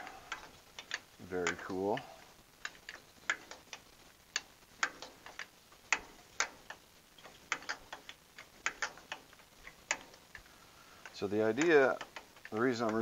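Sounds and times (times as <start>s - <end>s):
wrench metallic clicks: 4.4s - 10.2s.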